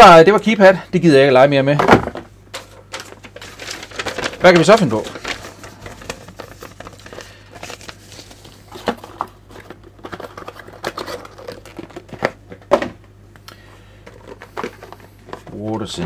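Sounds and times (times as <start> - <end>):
paper rustling and crinkling: 2.6 - 12.7.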